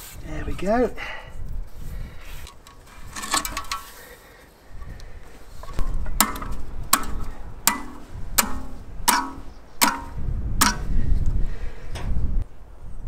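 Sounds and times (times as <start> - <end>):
hammer striking metal tool: 6.2 - 10.8.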